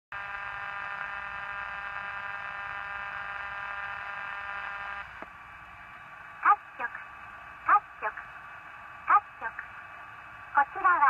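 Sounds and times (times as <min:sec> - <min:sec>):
radio speaker buzzing tone: 0:00.1 - 0:05.2.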